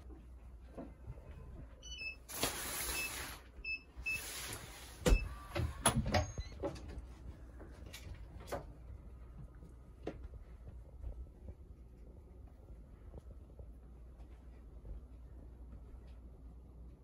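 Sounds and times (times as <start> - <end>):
rustling slides: 4.0 - 5.0.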